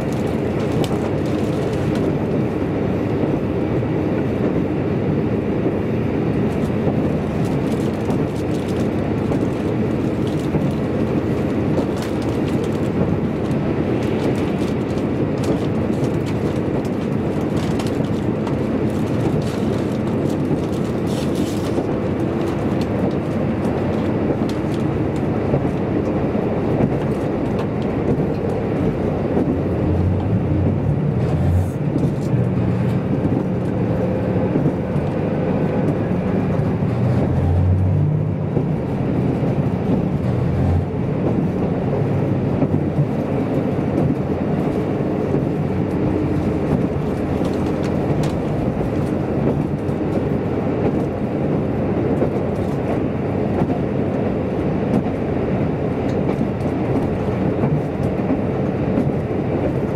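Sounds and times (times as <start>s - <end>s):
diesel engine drone: 0.0s - 59.9s
train wheels running on rails: 0.0s - 59.9s.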